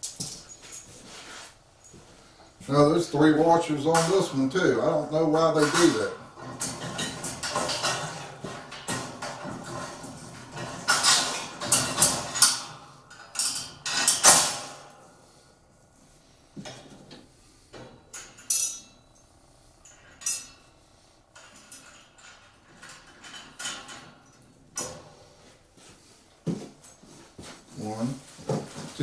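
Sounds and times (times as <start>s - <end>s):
metal bolts clinking: 3.1s - 15.2s, 17.8s - 25.2s.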